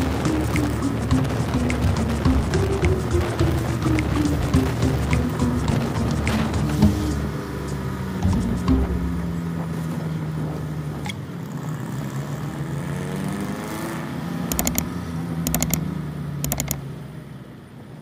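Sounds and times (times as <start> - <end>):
diesel engine running: 0.0 - 11.0.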